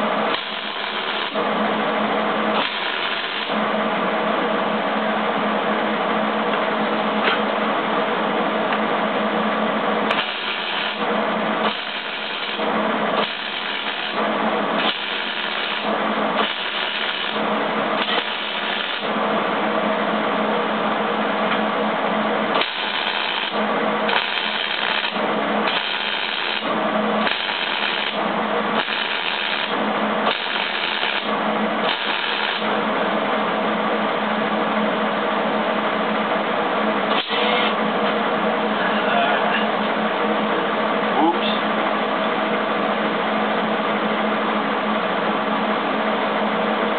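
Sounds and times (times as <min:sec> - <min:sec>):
welder arc crackling: 0:00.0 - 0:01.5, 0:02.4 - 0:03.7, 0:10.0 - 0:19.2, 0:22.4 - 0:32.8.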